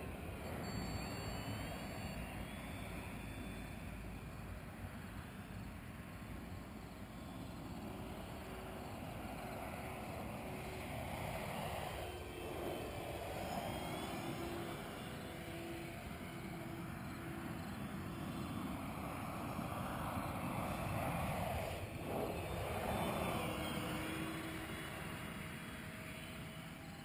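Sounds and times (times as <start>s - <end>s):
steady rushing noise: 0.0s - 27.0s
model airplane motor hum: 6.7s - 27.0s.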